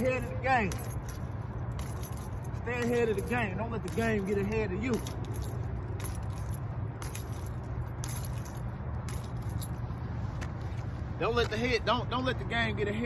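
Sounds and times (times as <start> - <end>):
keys jingling: 0.0 - 10.0
low steady rumble: 0.0 - 13.0.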